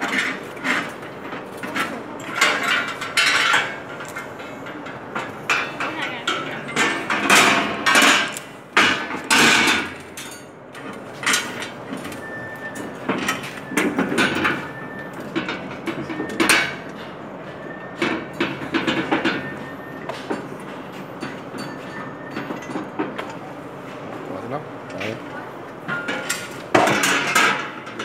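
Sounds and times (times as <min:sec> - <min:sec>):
steel table legs clanking: 0:00.0 - 0:12.2, 0:25.8 - 0:28.0.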